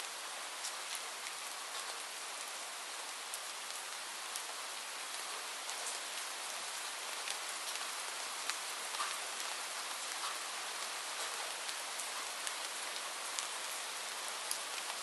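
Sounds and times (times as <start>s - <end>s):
raindrops ticking on a surface: 0.0s - 15.0s
steady rain hiss: 0.0s - 15.0s.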